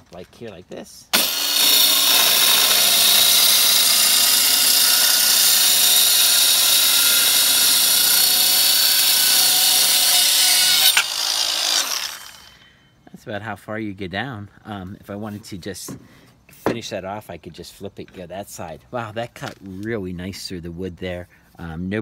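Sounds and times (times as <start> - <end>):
circular saw cutting wood: 1.1 - 12.6.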